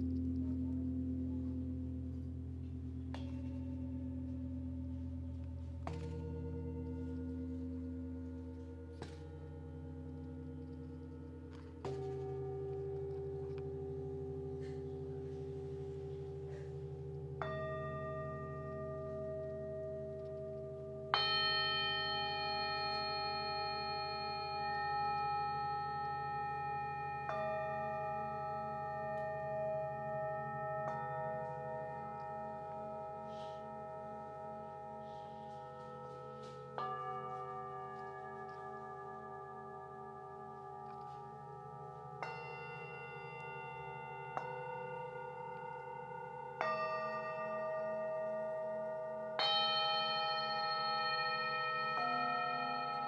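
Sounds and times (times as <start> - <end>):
mallet striking bowl: 0.0 - 25.5
metal singing bowls ringing: 0.0 - 53.0.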